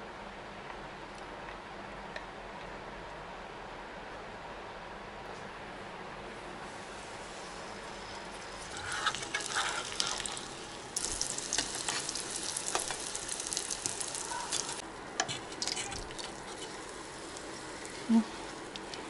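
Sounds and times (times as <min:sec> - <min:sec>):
flatbread sizzling in hot oil: 0:06.7 - 0:19.0.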